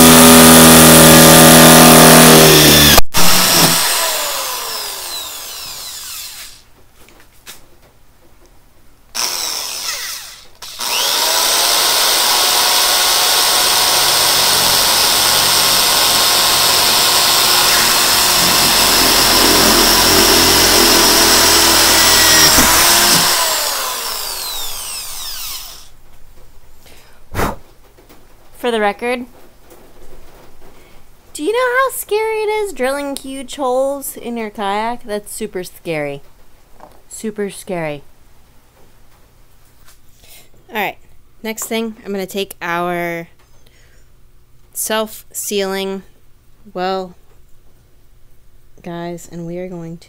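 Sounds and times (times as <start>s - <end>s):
power drill boring through plastic: 0.0s - 6.6s, 9.2s - 25.9s.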